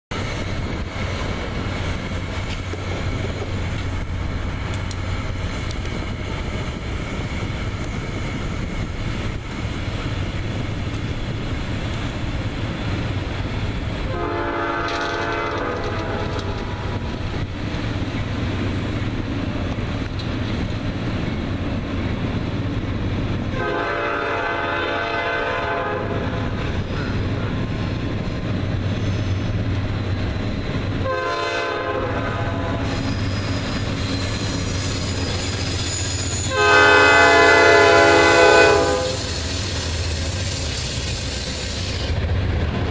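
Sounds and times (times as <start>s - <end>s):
diesel freight train rumble: 0.1s - 42.9s
locomotive air horn blasts: 14.1s - 16.9s, 23.5s - 26.4s, 31.0s - 32.9s, 36.5s - 39.4s.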